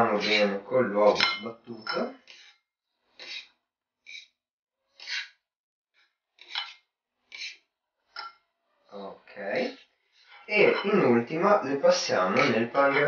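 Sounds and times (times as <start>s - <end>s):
fork scraping ceramic bowl: 0.0s - 5.4s, 6.4s - 8.4s, 12.2s - 13.0s.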